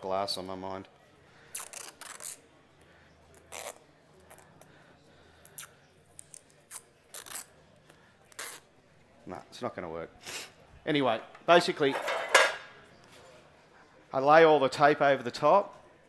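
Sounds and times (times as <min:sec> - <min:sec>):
masking tape ripping: 0:01.5 - 0:02.4, 0:03.4 - 0:03.8, 0:06.3 - 0:07.5, 0:08.3 - 0:08.7.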